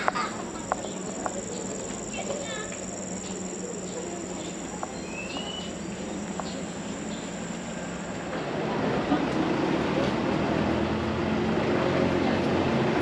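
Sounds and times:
insects trilling: 0:00.0 - 0:08.3.

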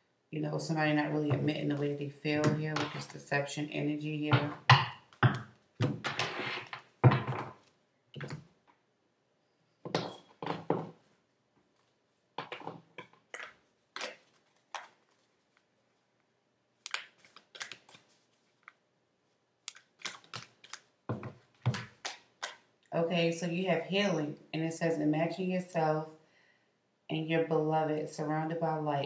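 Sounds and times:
cards clicking on wooden table: 0:16.8 - 0:18.0, 0:19.7 - 0:22.6.

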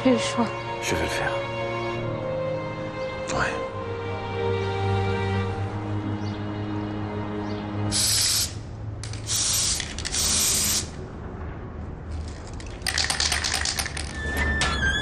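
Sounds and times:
hissing spray bursts: 0:07.9 - 0:11.0
dense rattling clicks: 0:12.1 - 0:14.3.

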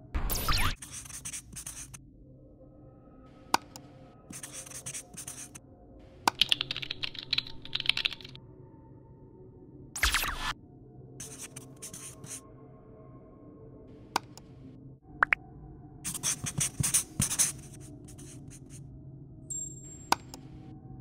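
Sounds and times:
faint background music: 0:00.1 - 0:21.0
marker pen scratching: 0:00.8 - 0:02.0, 0:04.3 - 0:05.6, 0:11.2 - 0:12.4, 0:16.1 - 0:18.8
keyboard typing clicks: 0:06.3 - 0:08.4, 0:20.1 - 0:20.5.

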